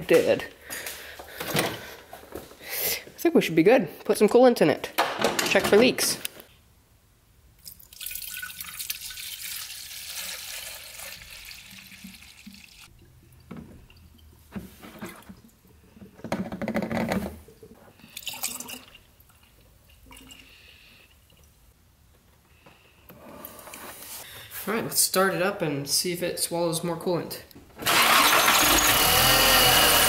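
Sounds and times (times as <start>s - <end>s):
liquid pouring into plastic tank: 7.6s - 20.4s.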